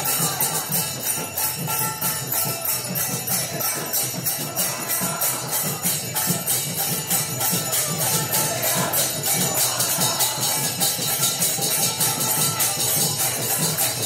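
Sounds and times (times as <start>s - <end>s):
small hand cymbals striking: 0.0s - 14.0s.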